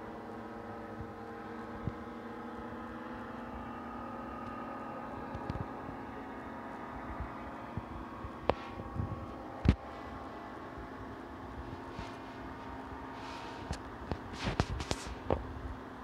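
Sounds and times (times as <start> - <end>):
steady machine hum: 0.0 - 16.0
wind rumbling on microphone: 6.8 - 15.8.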